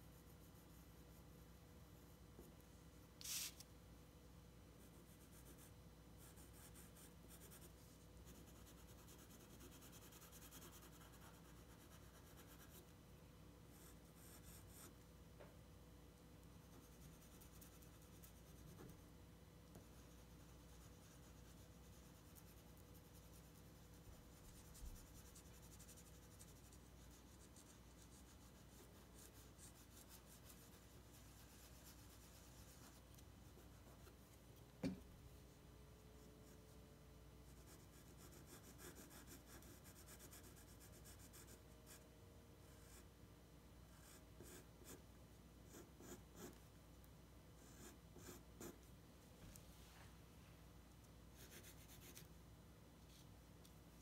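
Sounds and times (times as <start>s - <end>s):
pencil scratching on paper: 4.8s - 12.9s, 13.7s - 14.9s, 19.7s - 34.2s, 37.4s - 42.0s, 43.9s - 45.0s, 45.7s - 46.6s, 47.6s - 48.9s, 51.4s - 52.3s
soft knock: 34.8s - 35.1s.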